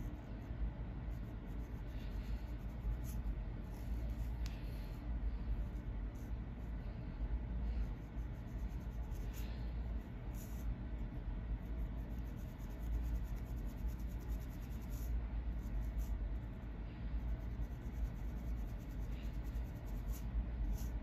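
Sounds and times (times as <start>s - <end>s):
comb scratching scalp: 7.8s - 9.6s, 11.6s - 16.6s, 17.3s - 21.0s.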